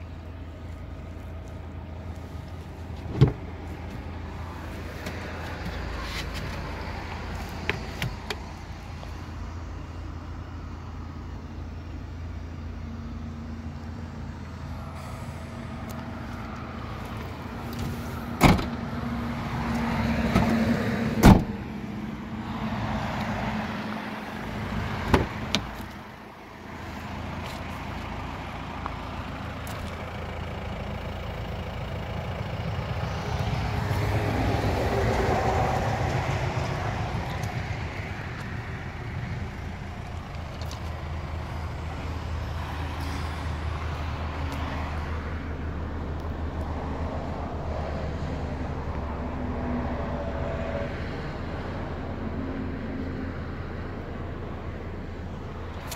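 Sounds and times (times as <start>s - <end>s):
car boot fittings clicking: 3.0s - 3.5s
steady low rumble: 21.1s - 46.8s.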